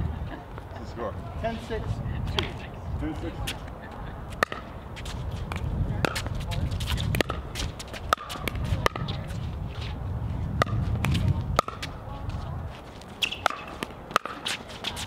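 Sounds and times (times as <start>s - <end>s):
low rumble: 8.4s - 12.8s.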